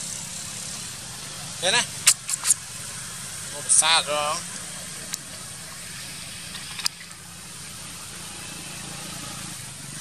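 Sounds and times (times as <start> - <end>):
motorbike engines: 0.0 - 10.0
road traffic: 0.0 - 10.0
sharp click: 2.0 - 2.6.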